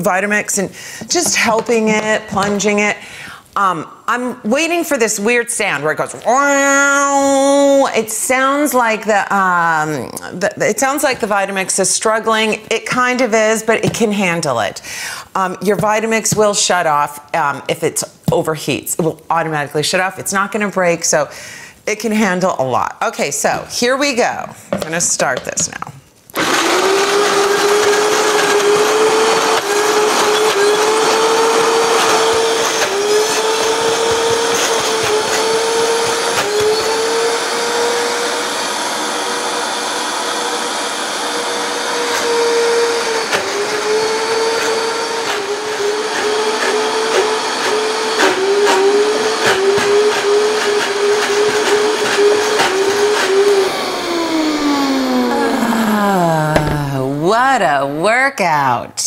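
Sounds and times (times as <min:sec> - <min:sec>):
blender motor running at high speed: 0:26.4 - 0:57.2.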